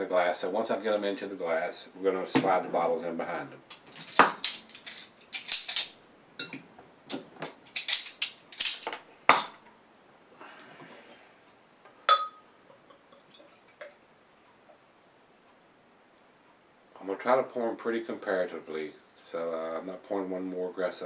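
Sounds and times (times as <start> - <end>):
ringing glass clink: 12.1 - 12.5.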